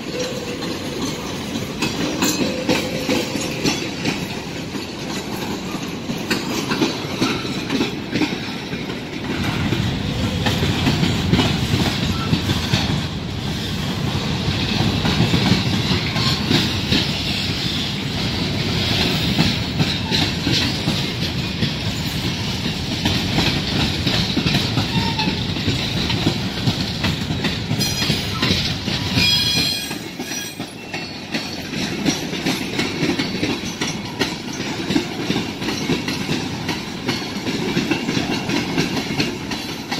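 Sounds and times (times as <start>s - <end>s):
wheels clicking over rail joints: 0.0s - 13.4s, 14.0s - 39.9s
train wheels rumbling on rail: 0.0s - 39.9s
high wheel squeal: 29.2s - 31.3s.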